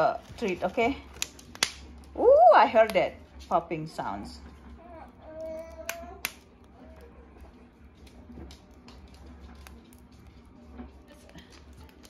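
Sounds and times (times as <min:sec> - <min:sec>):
pork rinds popping: 0:01.0 - 0:02.1, 0:05.5 - 0:06.8.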